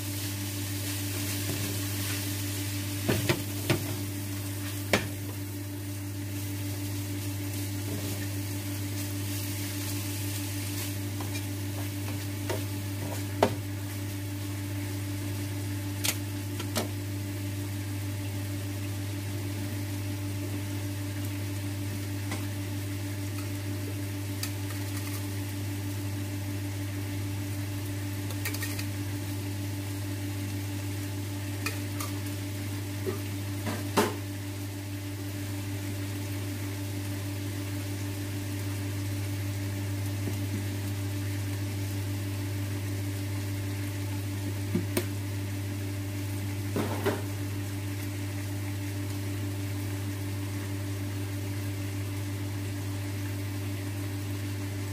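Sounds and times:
meat sizzling in frying pan: 0.0 - 54.9.

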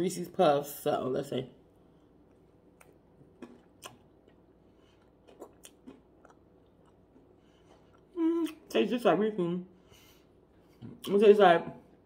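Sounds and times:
chewing crunches: 2.0 - 8.7.

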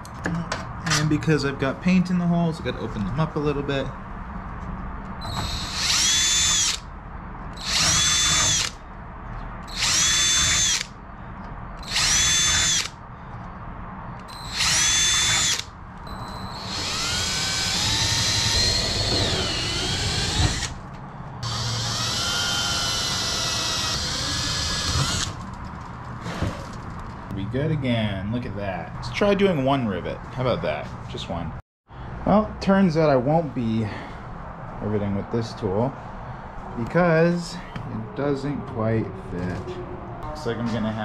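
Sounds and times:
cordless drill whining: 5.2 - 6.8, 7.6 - 8.8, 9.6 - 10.9, 11.8 - 13.0, 14.3 - 20.8, 21.4 - 25.4.

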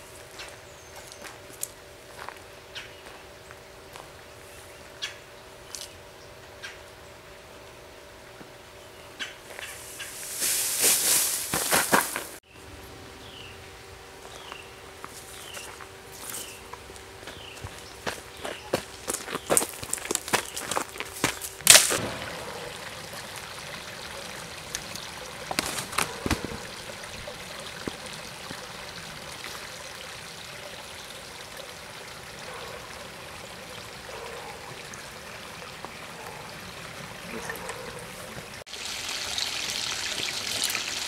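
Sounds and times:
creek water trickling over rocks: 15.2 - 41.0.

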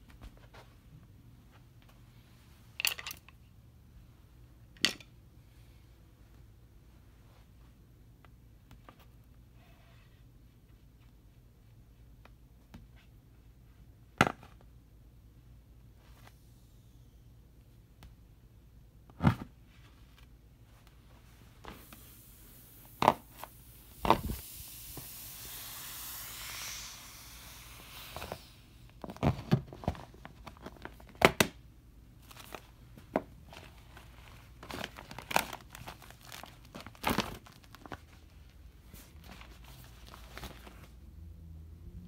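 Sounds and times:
air hissing out: 21.7 - 28.9.

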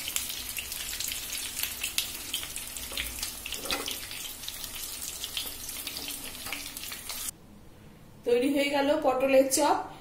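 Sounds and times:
food sizzling in oil: 0.0 - 7.3
spatula scraping a pan: 2.9 - 4.2.

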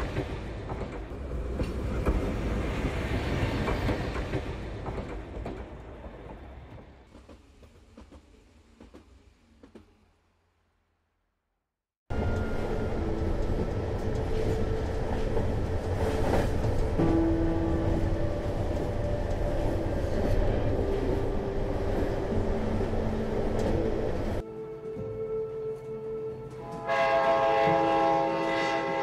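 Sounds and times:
train rumbling: 0.0 - 10.3, 12.1 - 29.0.

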